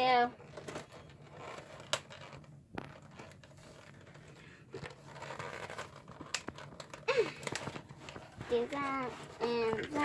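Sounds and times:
plastic packaging crinkling: 0.4 - 10.0.

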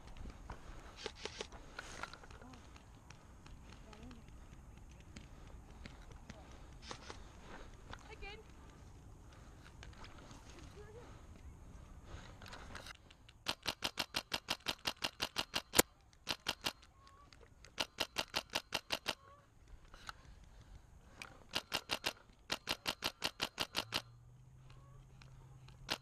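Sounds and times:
airsoft gun rapid shots: 13.4 - 16.8, 17.8 - 19.2, 21.5 - 24.1.

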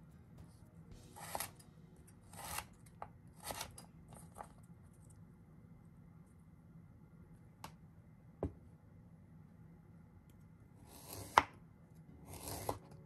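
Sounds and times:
knife slicing on cutting board: 1.2 - 1.6, 10.9 - 11.5, 12.3 - 12.8.

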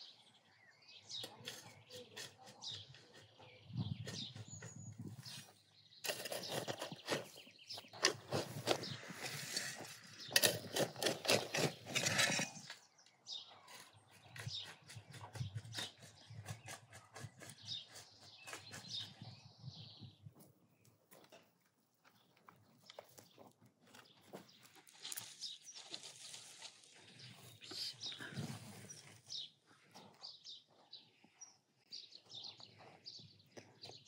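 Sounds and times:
shovel digging stony soil: 1.2 - 13.0, 13.7 - 19.2.

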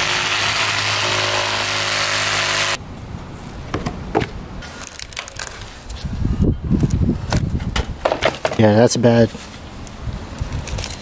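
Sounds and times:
reciprocating saw cutting wood: 0.0 - 2.8
wood knocking and cracking: 7.3 - 8.6.

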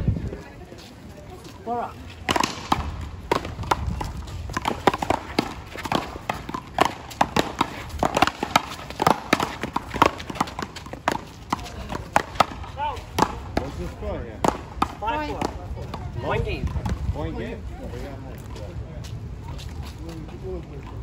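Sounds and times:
players footsteps: 0.2 - 17.2
ball knocking off paddles and wall: 2.2 - 13.8, 14.4 - 16.0.

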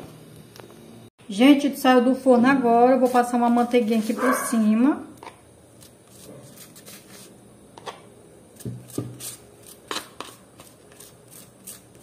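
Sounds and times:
pastry brush brushing bread: 2.7 - 4.5, 5.8 - 7.4, 8.6 - 12.0.

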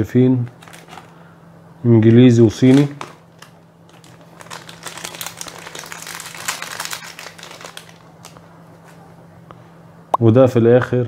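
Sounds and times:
plastic pouch crinkling: 0.5 - 1.2, 2.6 - 8.4.

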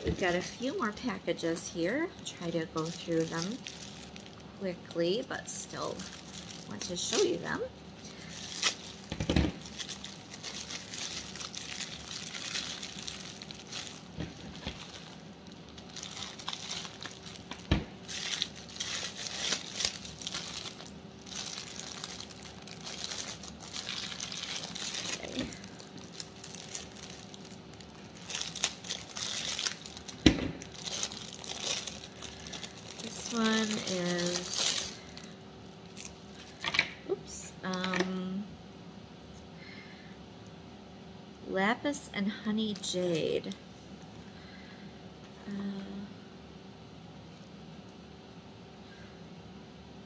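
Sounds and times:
plastic packaging crinkling: 0.0 - 36.8.

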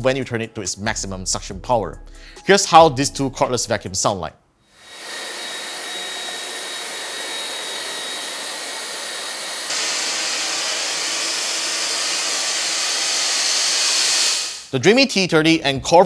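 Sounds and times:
hissy stick vacuum running: 4.8 - 14.7
stick vacuum whirring: 4.8 - 14.7.

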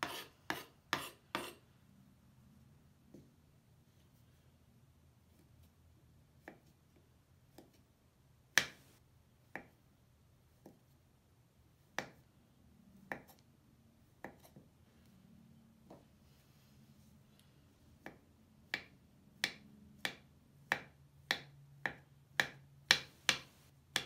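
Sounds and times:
knife tapping on cutting board: 18.0 - 24.0.

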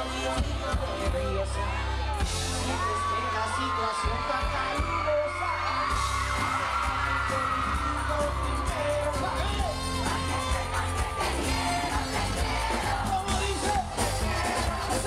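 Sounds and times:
man singing: 0.0 - 15.0
reggaeton song over sound system: 0.0 - 15.0
heavy bass beat: 2.1 - 3.1, 5.8 - 15.0.

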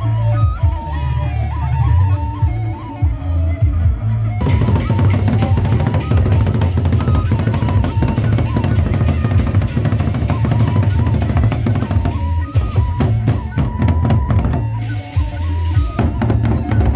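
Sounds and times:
barrel drums and clashing cymbals: 4.4 - 16.9.

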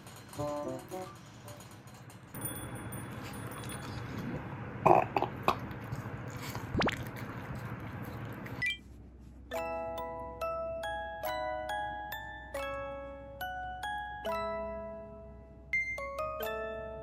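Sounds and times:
dog burping: 4.8 - 5.7.

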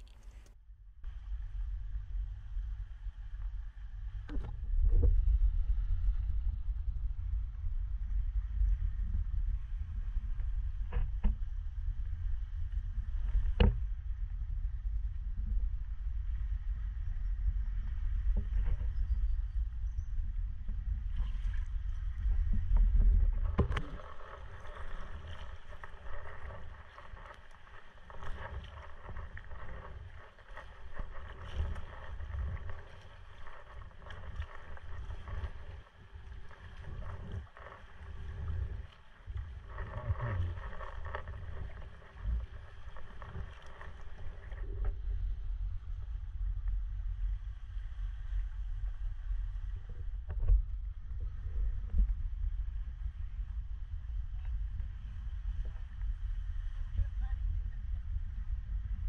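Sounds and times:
wind on microphone: 0.0 - 59.0
paddle splashing in water: 23.1 - 44.6.

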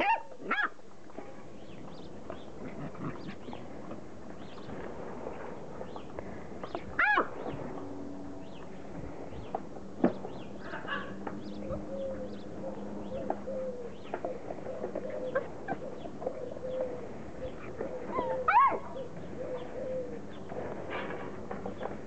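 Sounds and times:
low wavering whine: 3.4 - 22.0
puppy yelping: 7.0 - 7.4, 18.0 - 19.1.

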